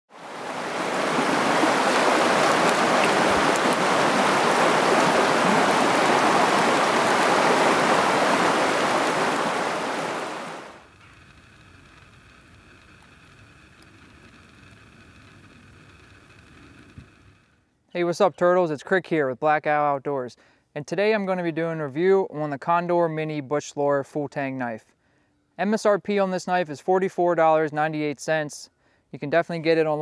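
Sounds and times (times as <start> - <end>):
stream water rushing: 0.1 - 10.9.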